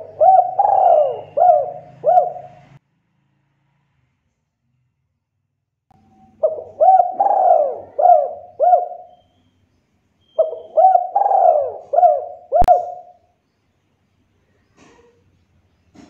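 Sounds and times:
dove cooing: 0.0 - 2.8, 6.3 - 9.2, 10.4 - 13.2.

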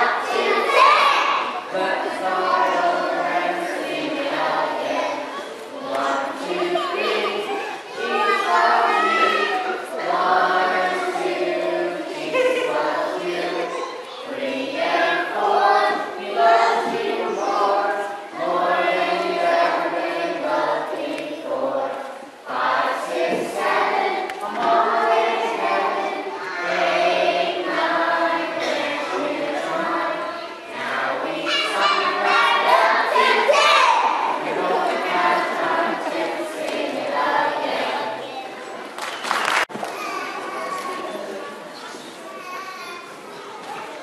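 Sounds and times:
children singing together: 0.0 - 38.8.

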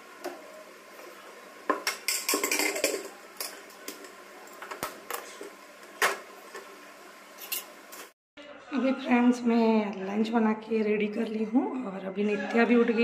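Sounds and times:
metal cookware clattering: 1.7 - 3.7, 7.4 - 8.1.

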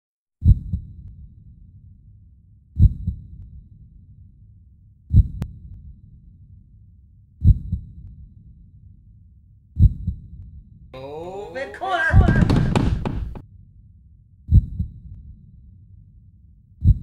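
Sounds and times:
heartbeat thumps: 0.4 - 0.8, 2.8 - 3.3, 5.1 - 5.4, 7.4 - 7.9, 9.8 - 10.3, 12.1 - 13.4, 14.5 - 15.0.

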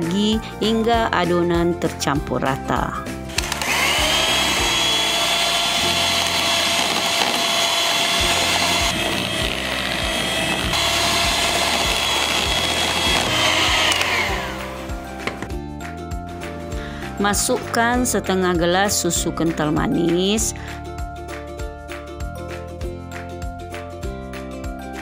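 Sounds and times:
electric hand mixer whining: 3.3 - 15.5.

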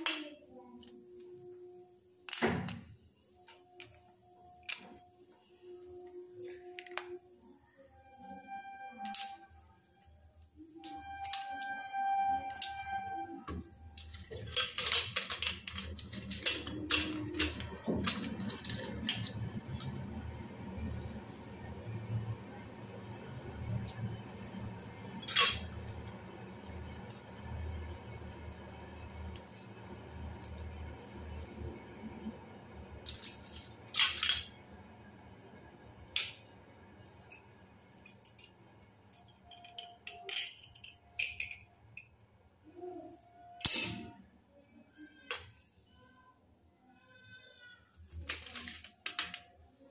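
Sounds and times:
slate pencils clattering in bowl: 14.0 - 20.4, 37.3 - 42.1.

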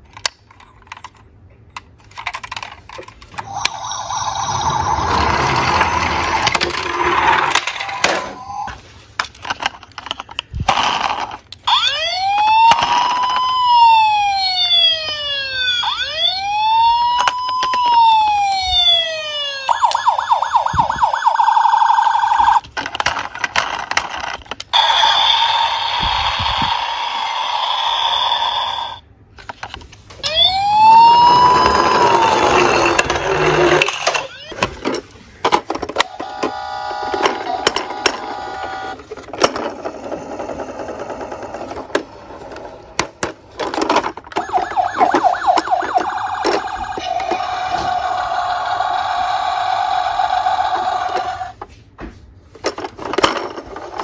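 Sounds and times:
toy electronic siren: 3.4 - 6.7, 7.4 - 8.8, 11.6 - 22.6, 24.7 - 29.0, 30.2 - 34.8, 36.0 - 39.0, 44.3 - 51.6.

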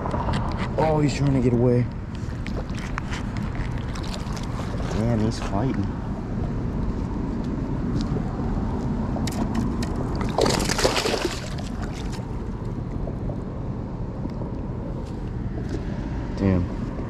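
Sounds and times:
wind rumbling on microphone: 0.0 - 17.0
fish splashing: 3.5 - 5.0, 9.3 - 12.6.

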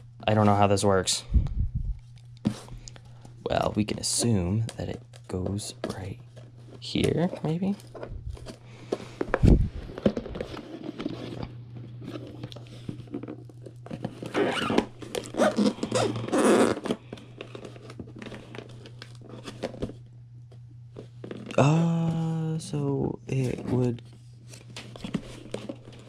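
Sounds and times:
packing tape ripping: 14.2 - 19.8.

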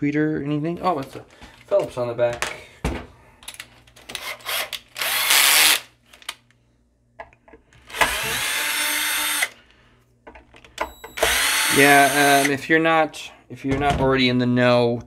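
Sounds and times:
power drill whirring: 4.2 - 5.9, 7.8 - 9.6, 10.8 - 12.6.

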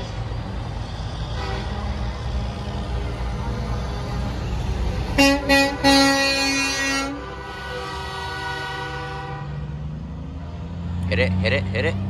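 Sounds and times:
diesel trucks rolling past: 0.0 - 12.0
truck air horn blasts: 1.3 - 2.0, 5.2 - 9.8.

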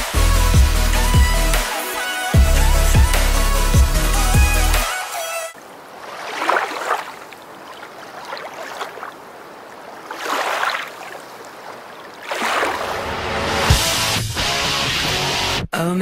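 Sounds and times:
river water rushing: 4.8 - 13.7.

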